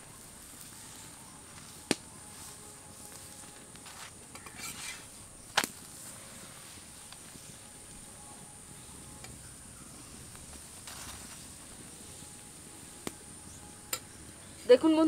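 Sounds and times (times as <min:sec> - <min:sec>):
spatula scraping iron pan: 0:04.4 - 0:05.1
oil frying hiss: 0:04.4 - 0:15.0.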